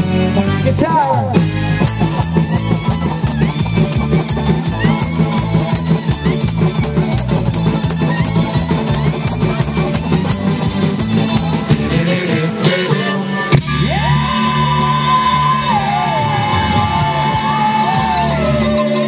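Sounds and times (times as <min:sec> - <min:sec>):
electric guitar: 0:00.0 - 0:19.0
live rock band playing: 0:00.0 - 0:19.0
tambourine shaking: 0:01.8 - 0:11.7, 0:14.9 - 0:19.0.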